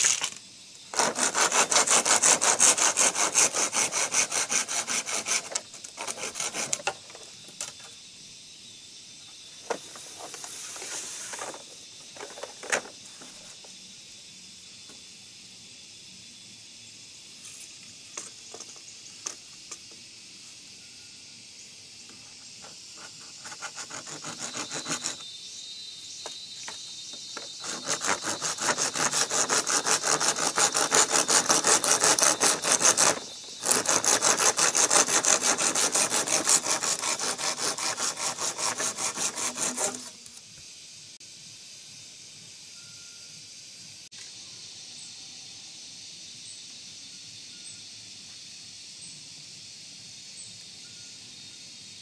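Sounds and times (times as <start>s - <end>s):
hand saw cutting bamboo: 0.9s - 7.2s, 22.6s - 25.2s, 26.7s - 40.3s.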